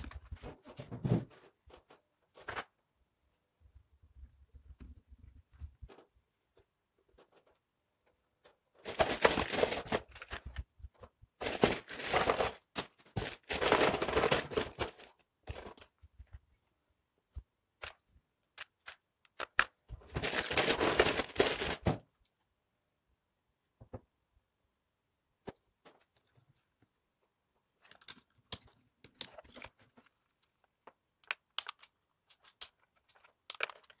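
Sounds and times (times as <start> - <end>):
plastic parts rustling: 5.7 - 16.5, 17.8 - 22.1, 27.7 - 34.0
plastic parts clicking: 17.8 - 21.7, 27.8 - 34.0.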